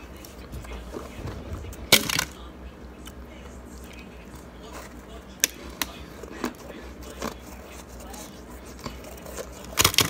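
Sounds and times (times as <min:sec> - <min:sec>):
chewing ice: 0:04.7 - 0:10.0.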